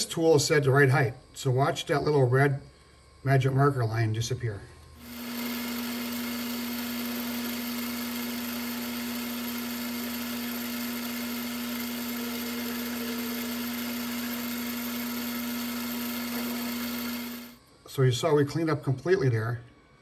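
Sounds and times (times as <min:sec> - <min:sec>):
metal lathe humming: 0:05.0 - 0:17.6
tool cutting metal bar: 0:05.0 - 0:17.6.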